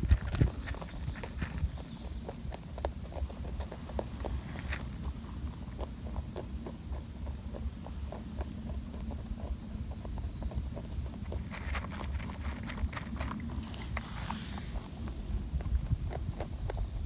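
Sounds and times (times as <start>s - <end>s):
rabbit crunching pellets: 0.0s - 17.0s
low rumble: 3.5s - 17.0s.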